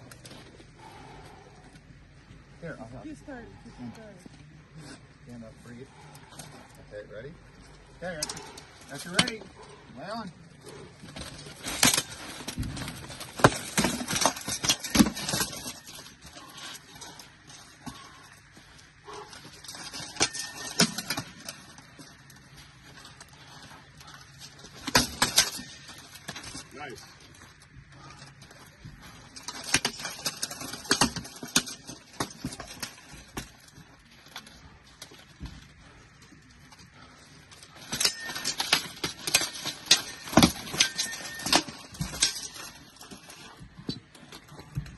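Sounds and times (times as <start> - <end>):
swords striking shields and armour: 11.6 - 16.0, 37.8 - 42.6.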